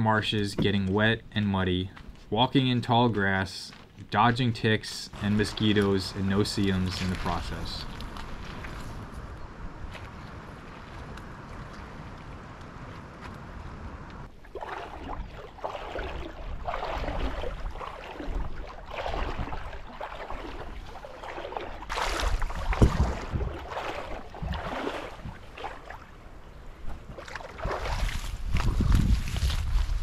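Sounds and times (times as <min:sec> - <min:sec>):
footsteps swishing through wet grass: 0:05.2 - 0:13.3, 0:14.5 - 0:26.0, 0:26.9 - 0:30.0
wind rumble on microphone: 0:21.9 - 0:30.0.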